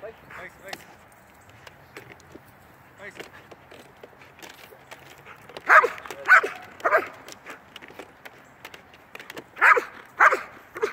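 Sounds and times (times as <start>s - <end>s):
dog barking: 5.7s - 7.2s, 9.6s - 10.9s.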